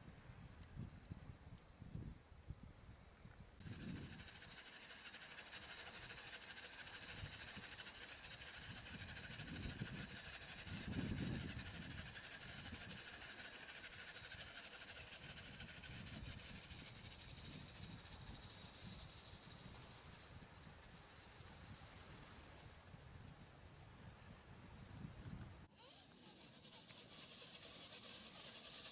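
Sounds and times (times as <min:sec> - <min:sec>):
toy car motor whining and rattling: 0:03.6 - 0:19.5, 0:25.7 - 0:28.9.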